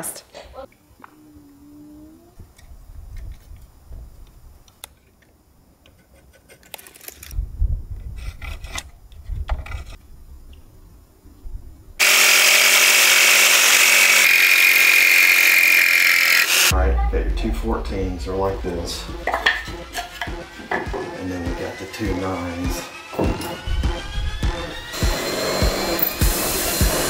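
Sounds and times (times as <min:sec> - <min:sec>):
power saw cutting wood: 0:12.0 - 0:16.7, 0:24.8 - 0:27.0
low rumbling: 0:16.7 - 0:20.2.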